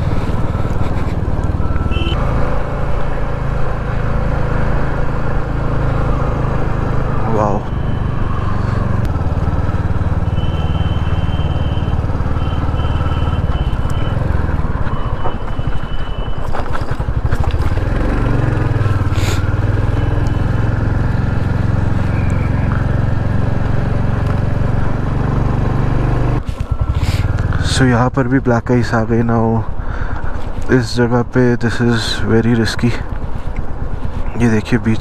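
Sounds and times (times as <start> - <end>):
gravel clicks under tyres: 0.0 - 2.1, 13.4 - 18.0
motorcycle engine running: 0.0 - 28.4.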